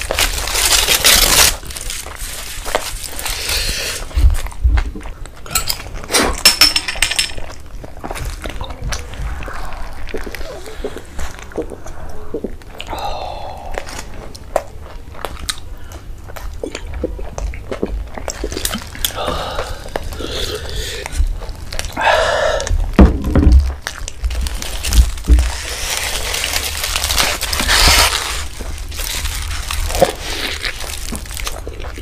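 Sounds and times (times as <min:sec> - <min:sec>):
foil rustling: 0:00.0 - 0:04.1, 0:24.2 - 0:32.0
person chewing food: 0:00.0 - 0:06.4, 0:07.3 - 0:23.0, 0:23.6 - 0:32.0.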